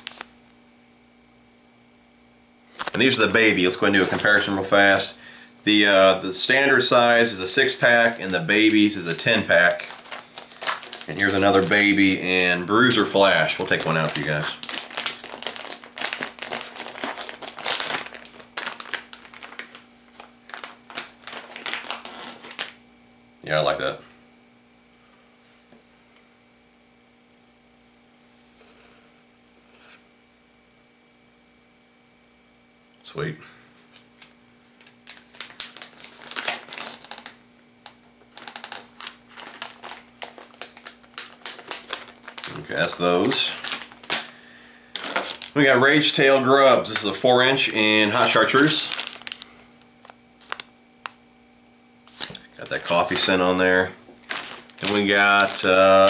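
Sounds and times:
plastic packaging crinkling: 0.0s - 0.3s, 2.7s - 5.2s, 5.8s - 22.8s, 33.9s - 51.2s, 52.0s - 56.0s.

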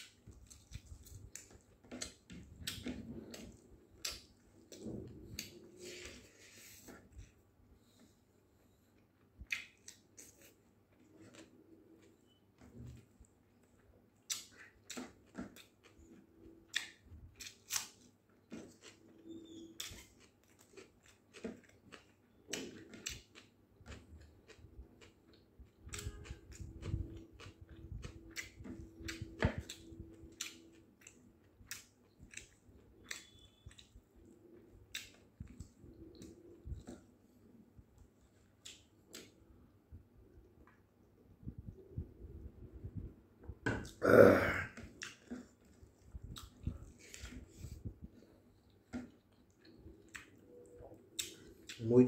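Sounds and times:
person chewing and lip-smacking: 0.0s - 6.1s, 9.0s - 12.4s, 13.6s - 37.1s, 38.2s - 39.4s, 44.7s - 51.9s.

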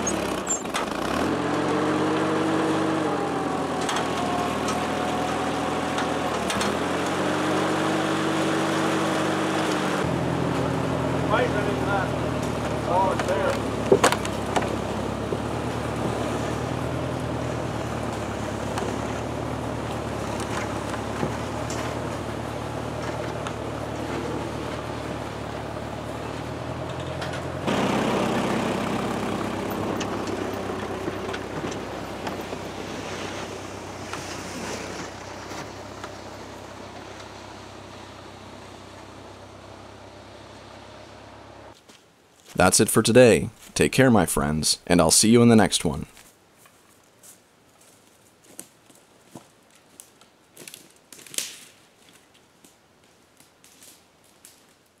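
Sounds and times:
tractor engine running: 0.0s - 41.8s
footsteps crunching through dry leaves: 46.2s - 52.3s.

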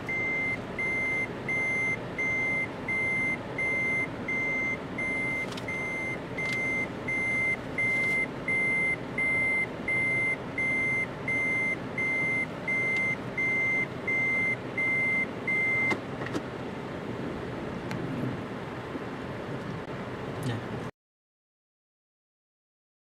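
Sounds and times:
reversing alarm beeping: 0.0s - 15.9s
vehicle engine rumble: 0.0s - 20.9s.

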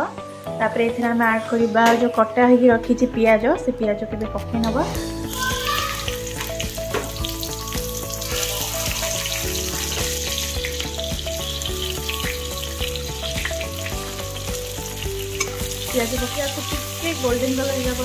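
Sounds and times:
background music melody: 0.0s - 18.0s
onions sizzling in hot oil: 5.1s - 18.0s.

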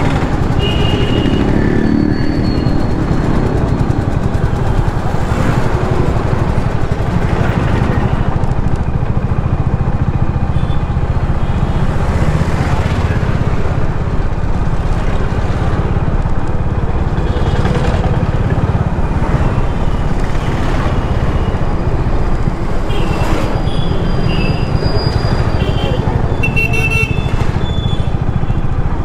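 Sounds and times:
traffic rumble: 0.0s - 29.0s
vehicle horn toots: 0.6s - 1.6s, 25.4s - 28.1s.

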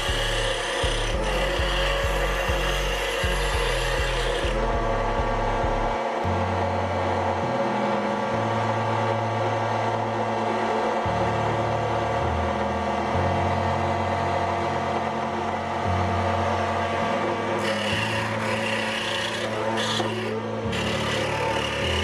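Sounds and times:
metal grinding on sanding disc: 0.0s - 4.7s, 17.6s - 22.0s
small motor running: 0.0s - 4.7s, 17.6s - 22.0s.

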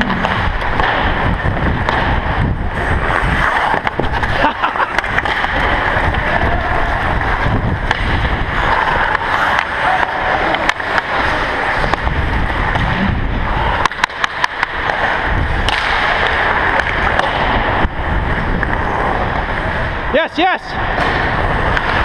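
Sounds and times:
wind rushing on microphone: 0.0s - 4.5s, 5.1s - 9.1s, 11.8s - 13.8s, 15.2s - 15.7s
skate blades scraping on ice: 0.0s - 20.2s, 20.9s - 22.0s.

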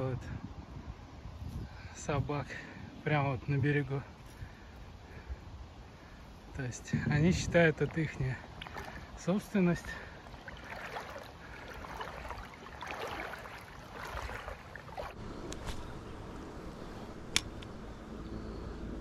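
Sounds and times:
wading through water sloshing: 7.3s - 16.0s
sharp click: 17.3s - 17.8s.

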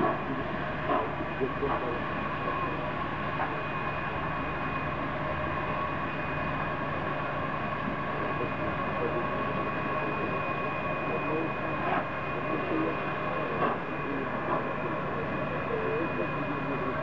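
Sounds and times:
high steady whine: 0.0s - 17.0s.

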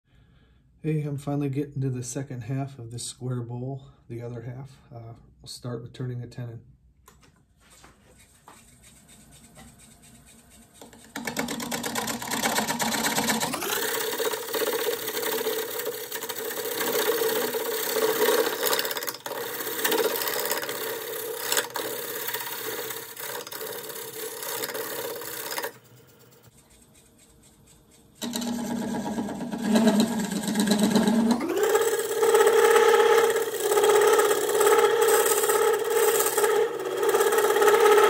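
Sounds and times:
lathe tool cutting wood: 8.9s - 25.8s, 28.2s - 38.0s.

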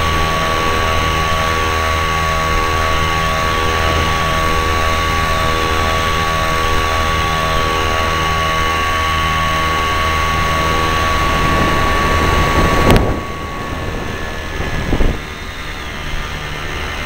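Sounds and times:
hang glider engine running: 0.0s - 17.0s
air rushing over camera: 10.3s - 16.6s.

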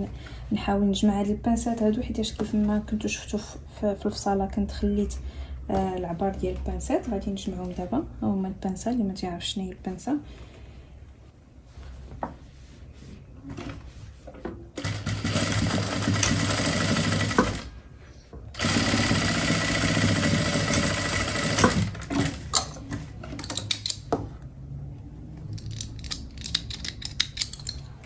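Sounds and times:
sewing machine stitching: 14.8s - 17.7s, 18.6s - 22.5s.

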